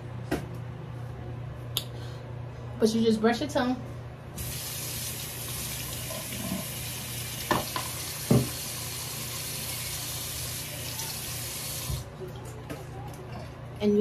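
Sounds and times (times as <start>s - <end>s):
tap running into sink: 7.5s - 8.6s.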